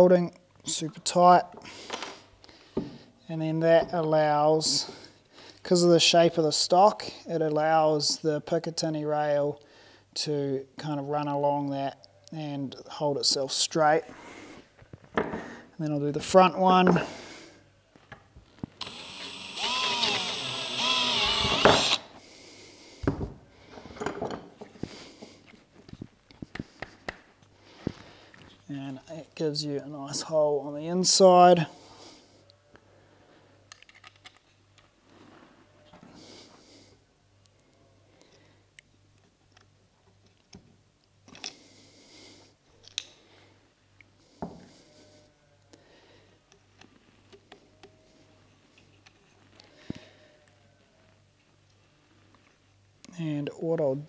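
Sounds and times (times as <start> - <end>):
drill boring through plastic: 18.8 - 22.1
plastic and metal parts clicking: 33.7 - 34.9.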